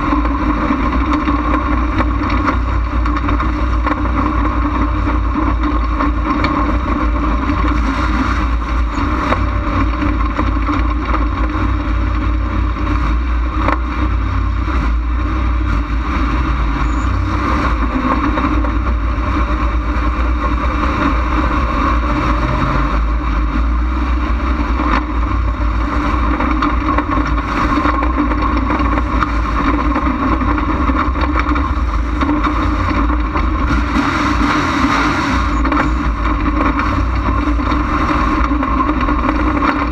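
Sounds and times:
race car engine droning: 0.0s - 39.9s
wind noise: 0.0s - 39.9s.

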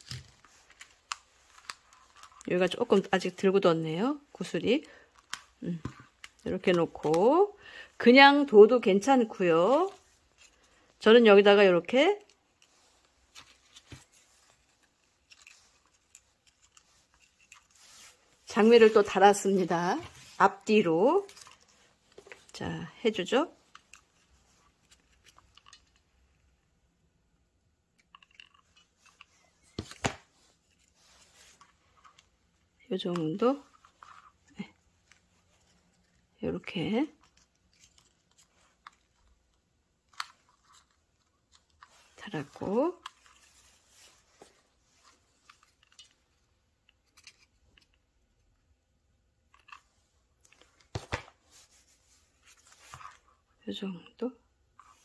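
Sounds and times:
paper crinkling: 0.0s - 3.3s, 12.4s - 22.6s, 37.0s - 46.2s.

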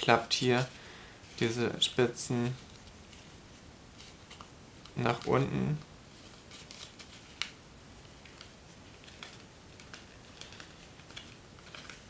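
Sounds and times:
paper crinkling and crackling: 4.0s - 12.0s.

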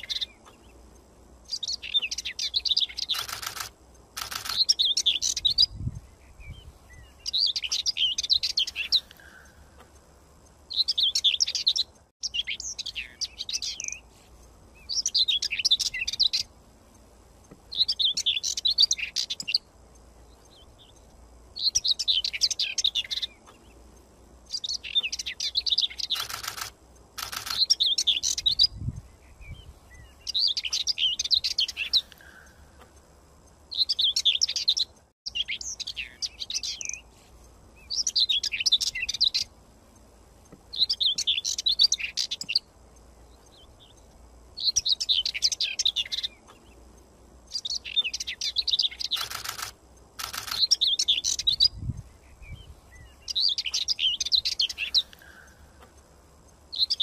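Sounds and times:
songbird chirping and trilling: 0.0s - 57.0s
short bursts of noise: 3.0s - 4.9s, 26.0s - 27.9s, 49.0s - 50.8s.

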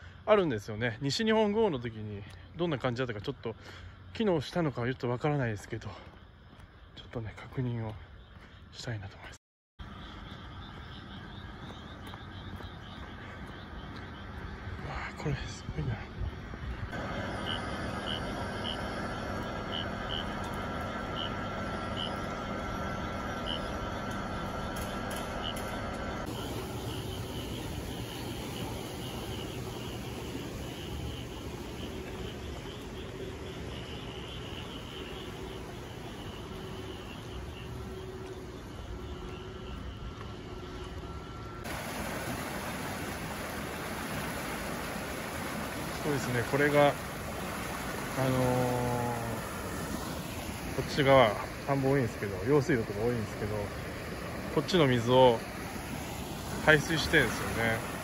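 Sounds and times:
insects chirping: 0.0s - 58.0s
pumps droning with hiss: 9.9s - 58.0s
water gushing: 26.2s - 37.4s, 41.6s - 58.0s.

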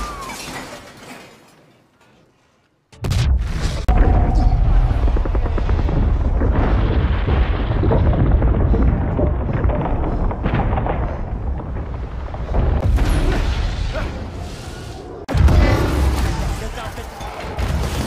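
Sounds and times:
crackling debris: 0.0s - 18.0s
explosion deep rumble: 3.0s - 14.1s.

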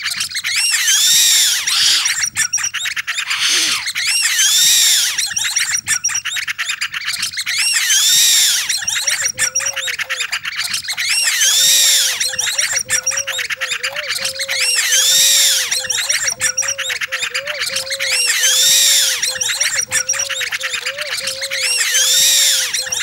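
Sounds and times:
high squeaks: 7.6s - 23.0s
chattering clicks: 7.9s - 23.0s
low warbling whistle: 11.0s - 23.0s.

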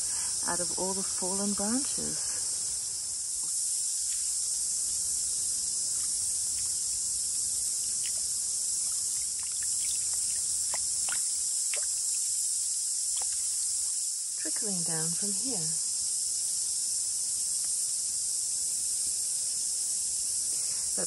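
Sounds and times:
high-pitched insect chorus: 0.0s - 21.0s
shallow water trickling and splashing: 3.4s - 5.0s, 5.8s - 14.0s.

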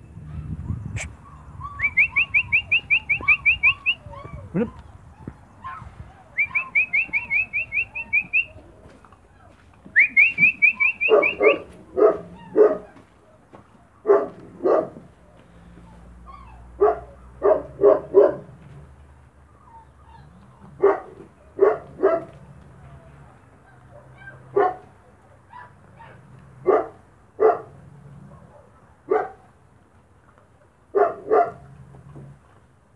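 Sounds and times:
puppies yapping: 0.2s - 27.7s
bird chirping: 0.7s - 8.6s, 9.9s - 11.7s.

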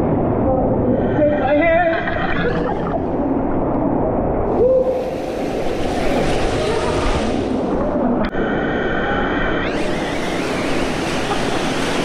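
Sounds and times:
stream water splashing and rushing: 4.4s - 8.2s, 10.0s - 12.0s.

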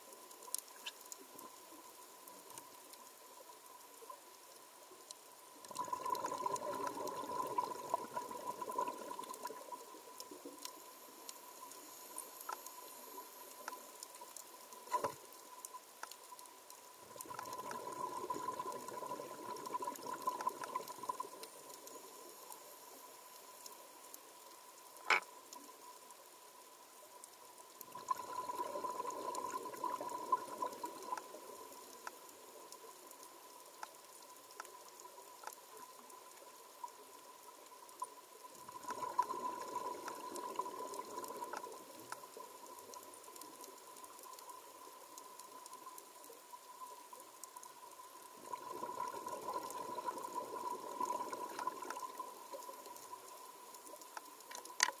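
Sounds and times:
faint clicks: 0.0s - 55.0s
scuba regulator exhaust bubbles: 5.7s - 9.8s, 17.1s - 21.4s, 27.9s - 31.6s, 38.6s - 42.1s, 48.4s - 52.7s.

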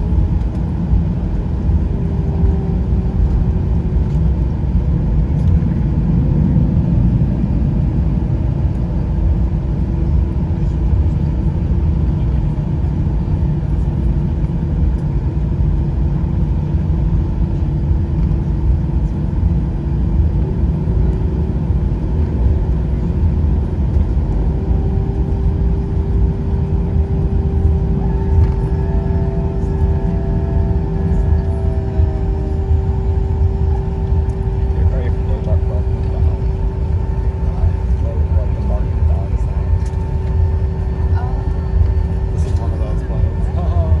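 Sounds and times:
engine rumble in aircraft cabin: 0.0s - 44.0s
steady hum: 0.0s - 44.0s
higher steady tones: 24.4s - 44.0s.

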